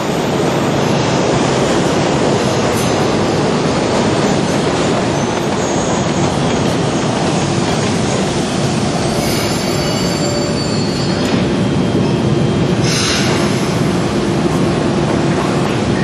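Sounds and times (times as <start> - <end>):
train wheels rumbling on rails: 0.0 - 16.0
thin squealing tones: 9.1 - 11.3.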